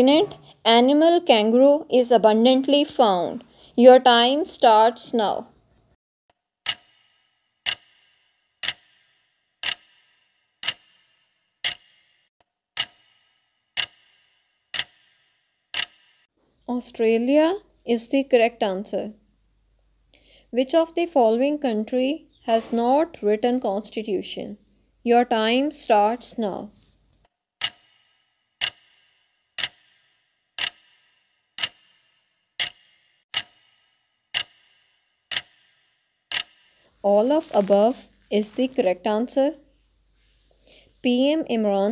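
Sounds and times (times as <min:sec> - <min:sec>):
clock ticking: 0:06.6 - 0:12.2, 0:12.8 - 0:16.2, 0:27.6 - 0:37.7.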